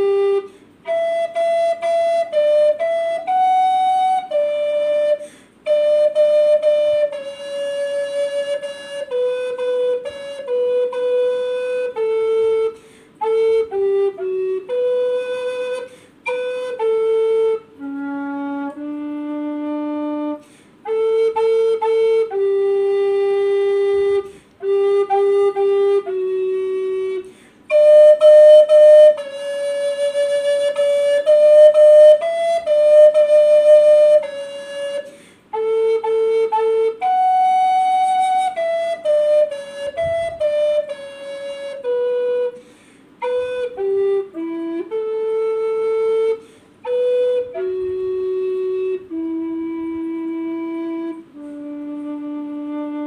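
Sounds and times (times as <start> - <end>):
recorder playing slow melody: 0.0 - 53.0
player breathing: 5.2 - 5.6, 12.8 - 13.2, 20.4 - 20.8, 27.2 - 27.7, 35.1 - 35.5, 42.6 - 43.2, 46.4 - 46.8.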